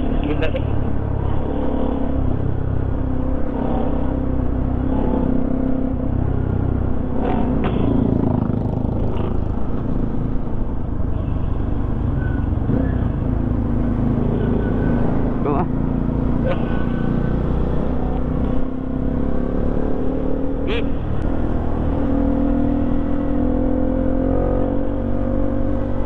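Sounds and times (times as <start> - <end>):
motorcycle engine cruising: 0.0 - 26.0
road noise: 0.0 - 26.0.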